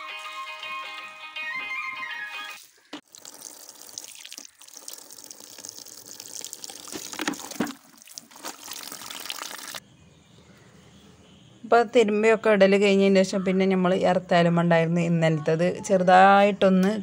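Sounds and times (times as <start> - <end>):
water splashing into metal bucket: 3.0 - 9.8
cloth sloshing in water: 6.8 - 9.8.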